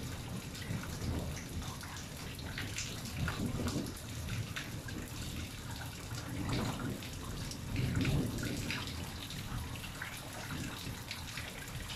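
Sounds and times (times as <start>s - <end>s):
rain dripping and splashing: 0.0s - 11.9s.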